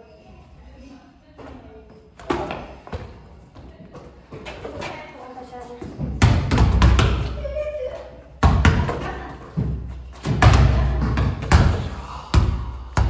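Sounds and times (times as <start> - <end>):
basketballs dribbled on hard floor: 5.9 - 7.4, 8.4 - 13.0.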